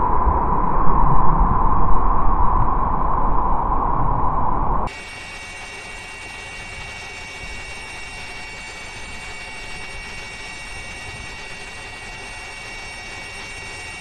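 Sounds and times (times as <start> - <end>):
high whining tones: 3.6 - 14.0
helicopter engine and rotor drone: 4.9 - 14.0.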